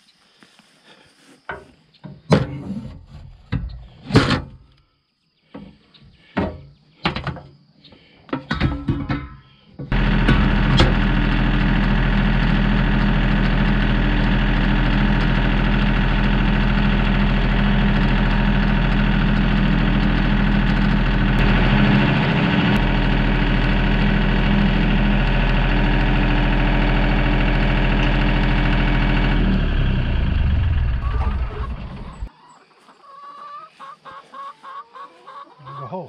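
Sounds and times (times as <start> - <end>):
utility vehicle engine running: 9.9 - 32.3.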